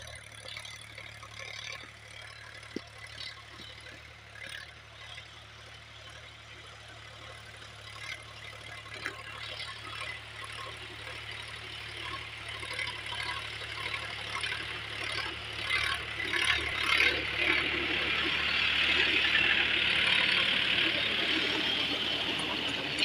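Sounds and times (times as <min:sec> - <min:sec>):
tractor diesel engine under load: 0:00.0 - 0:23.0
rotavator churning dry soil: 0:07.4 - 0:23.0.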